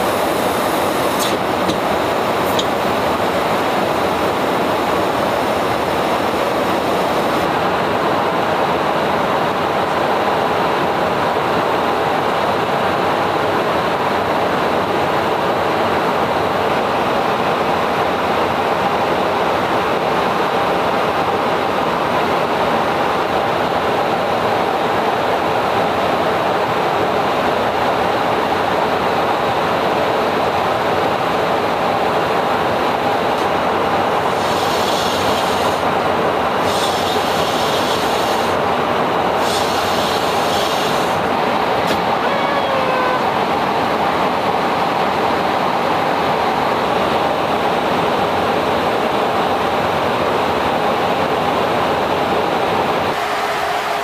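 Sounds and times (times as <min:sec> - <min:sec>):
faint high steady whine: 0:00.0 - 0:12.6, 0:14.9 - 0:45.6
rush of airflow: 0:00.0 - 0:13.2, 0:30.5 - 0:42.3
jet engine noise: 0:00.0 - 0:54.0.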